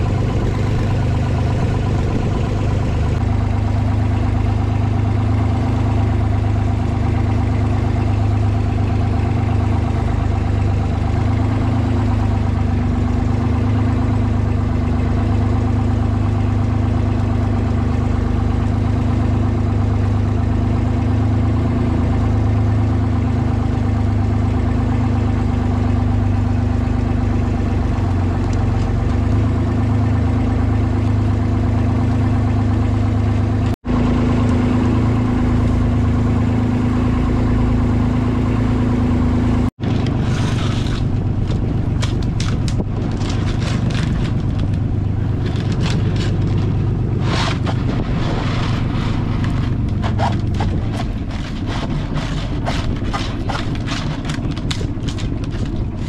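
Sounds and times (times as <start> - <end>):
boat engine running: 0.0 - 56.0
knocks and clatter: 39.8 - 56.0.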